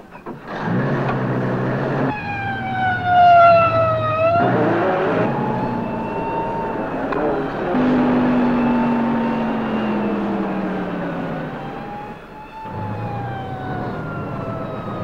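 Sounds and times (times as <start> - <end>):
truck engine running: 0.0 - 15.0
horn with falling pitch: 2.1 - 14.0.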